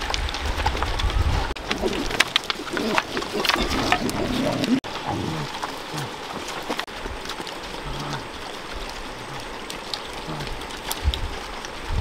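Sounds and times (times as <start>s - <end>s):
animals chewing food: 0.0s - 12.0s
pig grunts: 2.7s - 6.1s.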